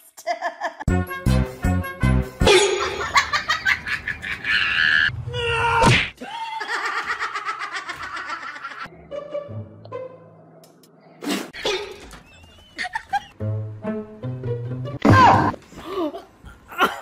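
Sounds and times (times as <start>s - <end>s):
person laughing hard: 2.6s - 5.1s, 6.2s - 8.9s.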